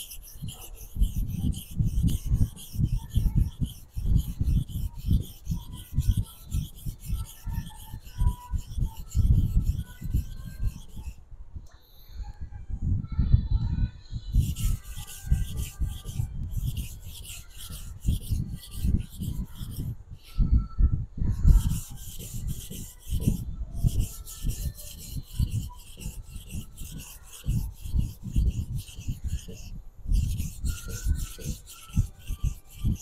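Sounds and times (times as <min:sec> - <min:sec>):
knife scraping on whetstone: 0:00.0 - 0:11.2, 0:14.4 - 0:19.9, 0:21.4 - 0:33.0.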